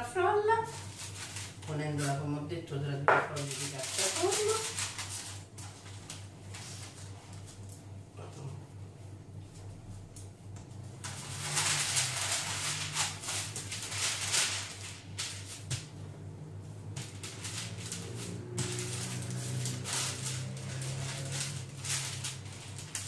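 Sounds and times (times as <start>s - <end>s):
baking paper crinkling under rolling pin: 0.0s - 8.0s, 9.5s - 23.0s.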